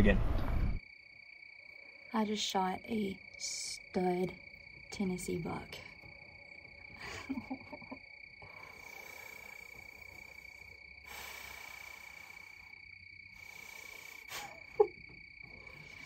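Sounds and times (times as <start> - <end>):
insects trilling: 0.8 - 16.0
soft breathy sounds: 8.4 - 14.8.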